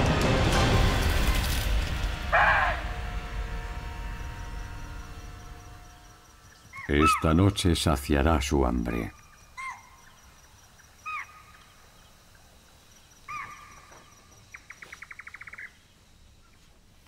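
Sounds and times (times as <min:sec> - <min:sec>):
animal calls at night: 0:02.3 - 0:02.9, 0:06.6 - 0:07.6, 0:08.8 - 0:12.1, 0:13.2 - 0:15.8.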